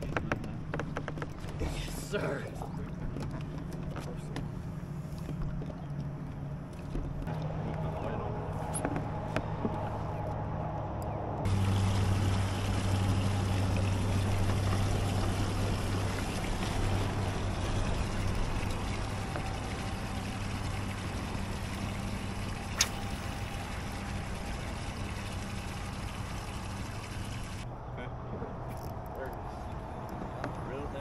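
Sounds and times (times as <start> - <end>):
small boat motor humming: 0.0 - 27.8
water rushing and trickling: 11.4 - 27.7
sharp click: 22.8 - 23.0.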